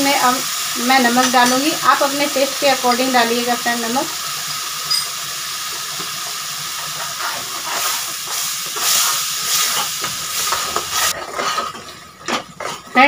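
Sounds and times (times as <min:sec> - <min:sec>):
masala sizzling in hot oil: 0:00.0 - 0:13.0
steel spoon scraping pan: 0:04.8 - 0:05.2, 0:06.9 - 0:13.0.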